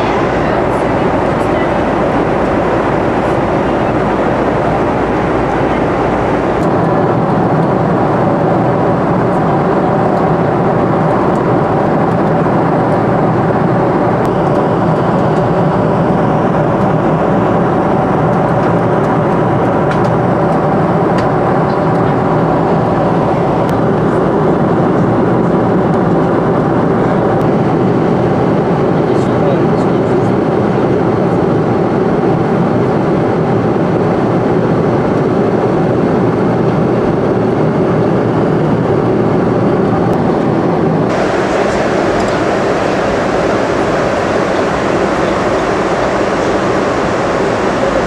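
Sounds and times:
aircraft cabin engine noise: 0:00.0 - 0:48.0.

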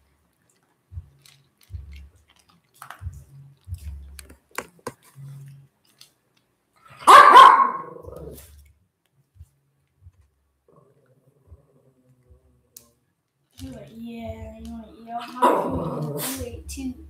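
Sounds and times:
dog crunching dry kibble: 0:00.3 - 0:04.8
small dog barking: 0:07.0 - 0:08.4, 0:15.4 - 0:16.4.

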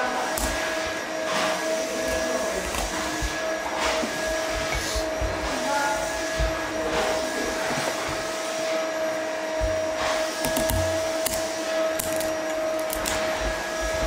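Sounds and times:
peeler scraping pumpkin rind: 0:09.1 - 0:14.0.

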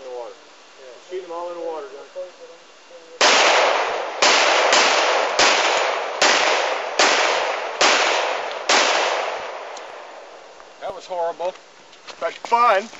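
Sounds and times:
gunshots: 0:03.2 - 0:09.8.

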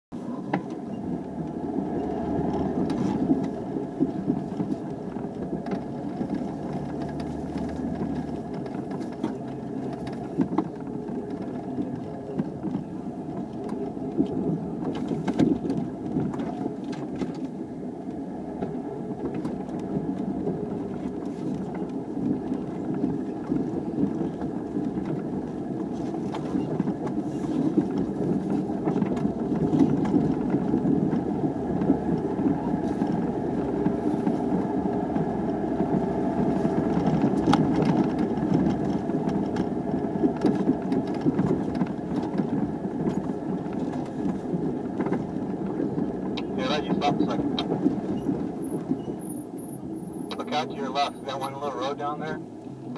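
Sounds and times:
vehicle engine rumble: 0:00.1 - 0:52.9
knocks and rattles over bumps: 0:00.5 - 0:51.1.

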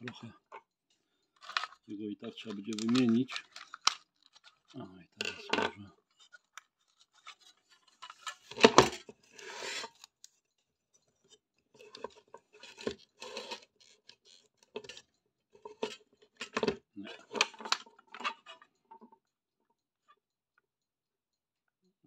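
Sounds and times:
small clicks and knocks: 0:00.0 - 0:19.3
rasping scrape: 0:09.3 - 0:10.0, 0:11.8 - 0:13.8.

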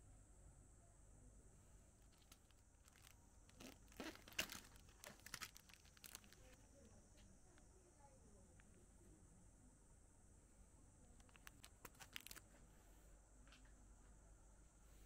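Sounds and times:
packaging crinkling and tearing: 0:02.0 - 0:06.6, 0:11.2 - 0:12.4.

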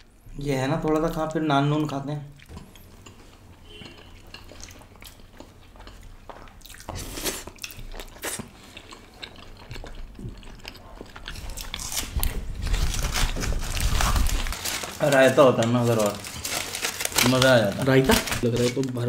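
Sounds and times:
chewing and biting bread: 0:02.4 - 0:15.0.

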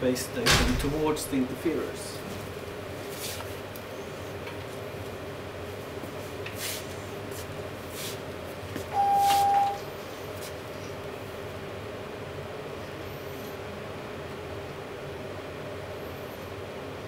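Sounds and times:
room hum: 0:00.0 - 0:17.0
electronic beep: 0:08.9 - 0:09.8.

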